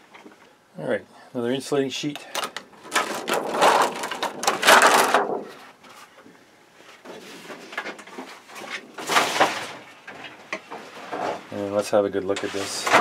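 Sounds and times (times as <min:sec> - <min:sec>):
sheet peeling and rustling: 0:02.8 - 0:06.1.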